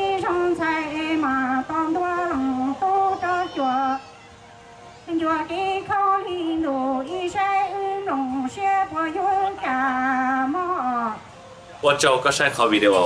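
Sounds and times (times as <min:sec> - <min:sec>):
woman singing into microphone: 0:00.0 - 0:04.0, 0:05.0 - 0:11.3.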